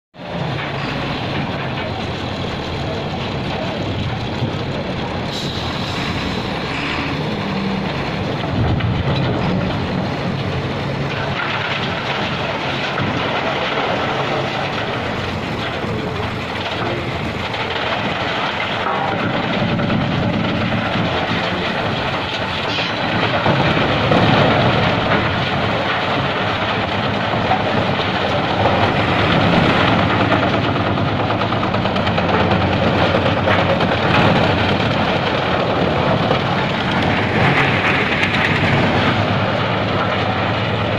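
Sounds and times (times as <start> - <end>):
diesel engine running: 0.2 - 40.9
wood crusher grinding: 0.2 - 40.9
wood cracking: 7.4 - 40.9.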